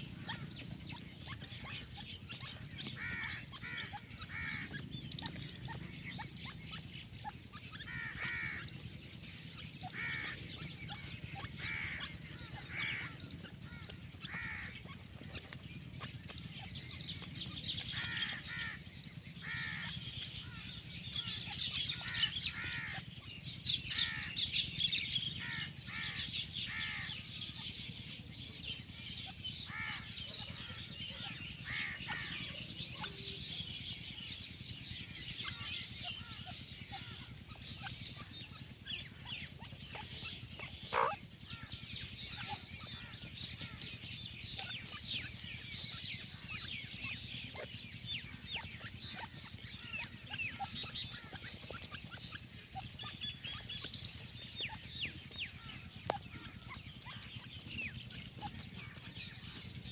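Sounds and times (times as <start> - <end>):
bird chirping calls: 0.0 - 59.9
distant bird chatter: 0.0 - 59.9.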